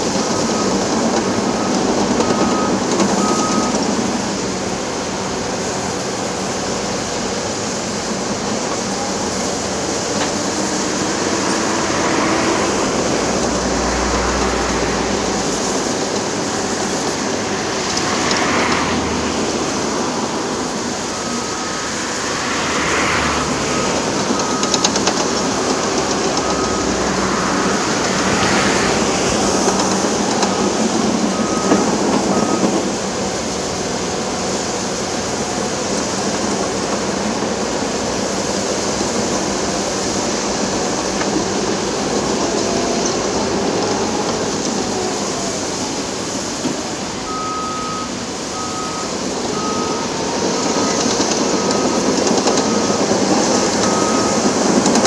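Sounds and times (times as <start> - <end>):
heavy construction machinery running: 0.0 - 55.0
passing motorway traffic: 0.0 - 55.0
faint short beep: 47.3 - 52.9.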